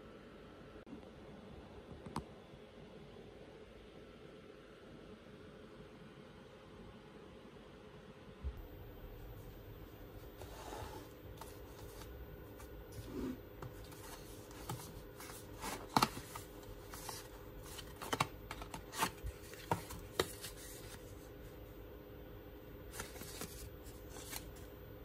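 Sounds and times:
cardboard and paper crinkling: 11.4 - 21.3, 22.9 - 24.7.

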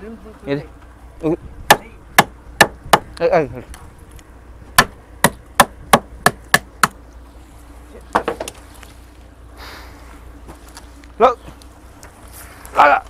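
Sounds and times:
wooden stick striking hard: 1.7 - 3.1, 4.8 - 7.0.

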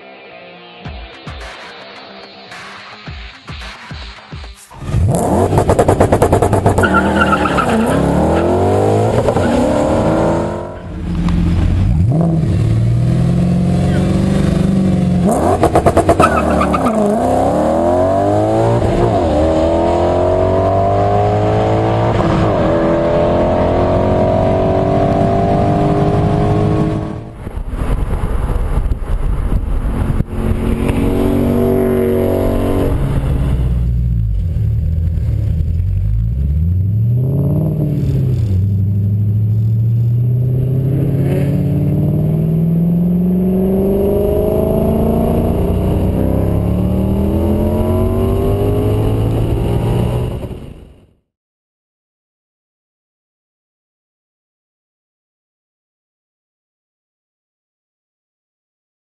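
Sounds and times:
car engine accelerating: 4.7 - 51.2.

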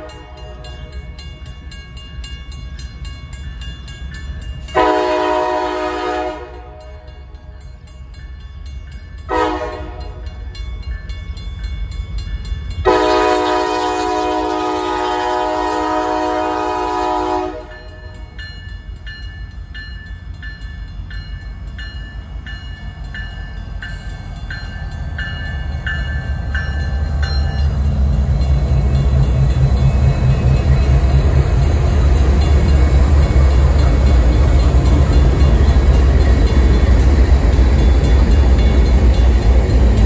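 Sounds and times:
locomotive air horn blasts: 0.0 - 0.7, 4.8 - 7.1, 9.3 - 10.2, 12.9 - 18.2
railroad crossing bell ringing: 0.0 - 40.0.

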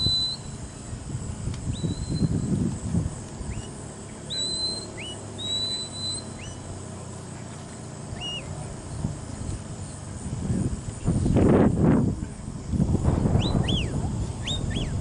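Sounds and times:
shepherd's whistle commands: 0.0 - 0.6, 1.7 - 2.5, 3.5 - 6.7, 8.2 - 8.5, 13.4 - 15.0.

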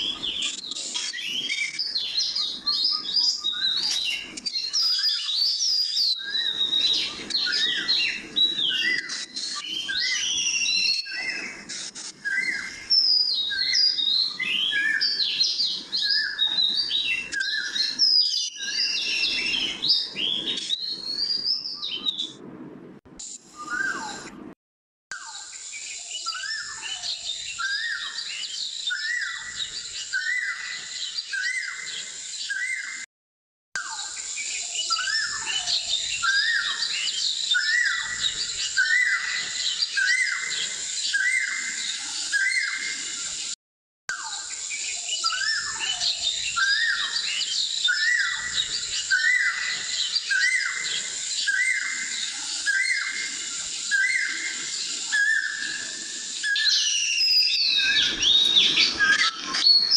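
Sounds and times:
bird downward chirp: 0.0 - 22.4, 23.5 - 24.3, 44.1 - 59.9
high bird chirps: 0.0 - 22.4, 25.1 - 33.0, 44.1 - 59.9
steady high hiss: 33.9 - 43.6, 44.3 - 59.9.

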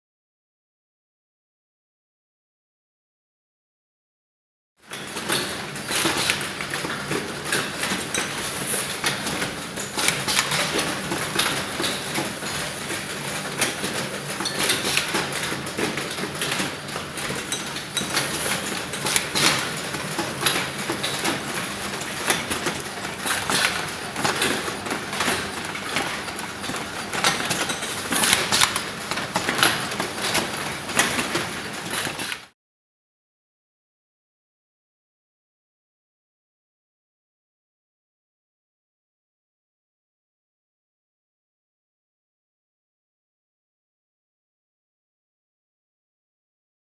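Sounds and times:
machine clattering: 4.9 - 32.5.

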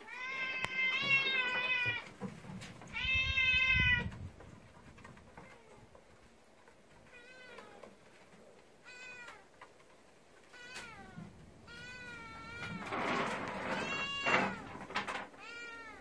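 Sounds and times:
cat meowing: 0.0 - 2.1, 2.9 - 4.2, 7.0 - 7.9, 8.8 - 9.5, 10.5 - 13.0, 15.4 - 16.0.

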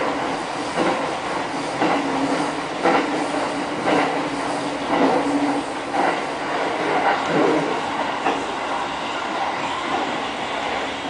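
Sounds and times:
train low hum and rumble: 0.0 - 11.0
train wheels clacking over joints: 0.7 - 8.4.

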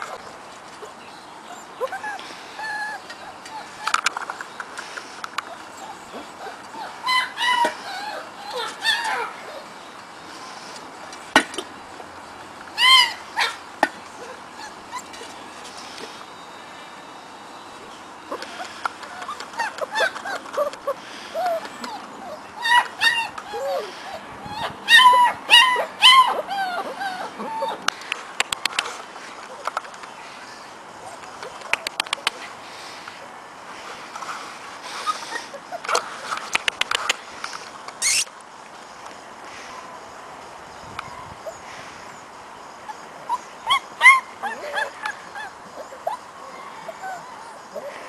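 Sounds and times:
puppy whining and whimpering: 0.8 - 4.4, 5.5 - 9.7, 14.1 - 15.5, 18.3 - 27.9, 42.9 - 48.0.

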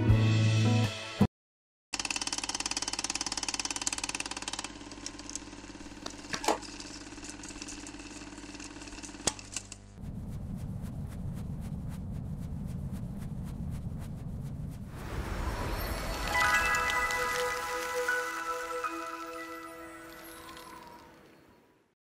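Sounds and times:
fast mechanical clatter: 2.0 - 10.9
steady hum: 9.9 - 15.8
low rumble with rapid ticking: 10.0 - 15.3.

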